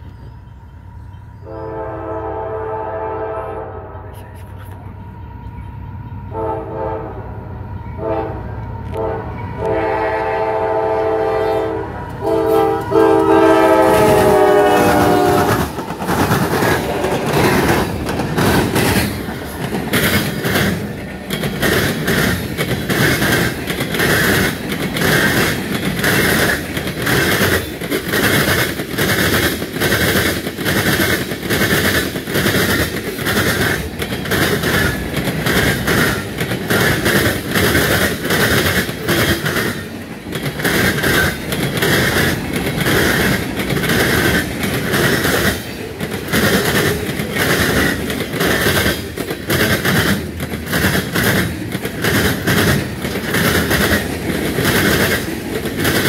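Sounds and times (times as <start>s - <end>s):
clickety-clack of wheels on rail joints: 0.0s - 1.8s, 7.7s - 56.0s
wheels rumbling on rails: 0.0s - 3.3s, 3.9s - 56.0s
locomotive horn blasts: 1.4s - 4.7s, 6.3s - 7.4s, 8.0s - 15.7s.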